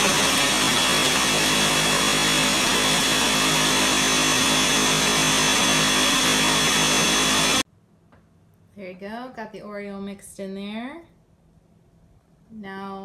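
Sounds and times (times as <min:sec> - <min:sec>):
blender motor running: 0:00.0 - 0:07.6.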